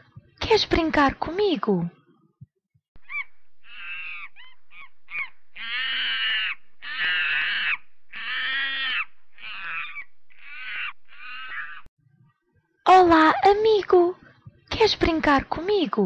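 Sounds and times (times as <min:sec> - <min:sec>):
monkey calls: 0:03.0 - 0:11.9.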